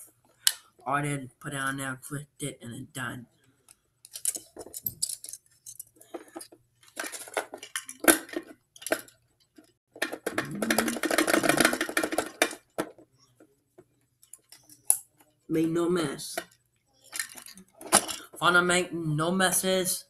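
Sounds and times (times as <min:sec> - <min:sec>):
plastic toy parts clattering: 0:03.6 - 0:13.1, 0:14.2 - 0:15.2, 0:16.3 - 0:18.4.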